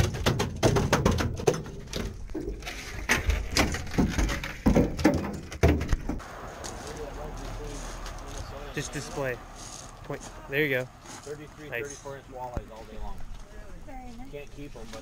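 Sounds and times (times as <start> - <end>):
knocks on metal deck: 0.0 - 1.8.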